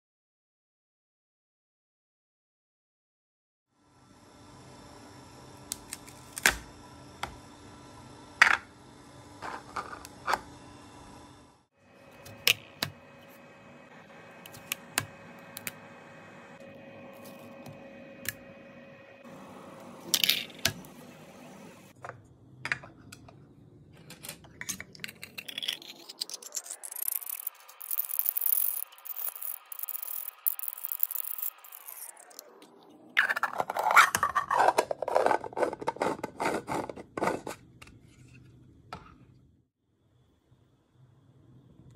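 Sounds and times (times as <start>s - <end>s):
printer humming: 11.8s - 22.0s.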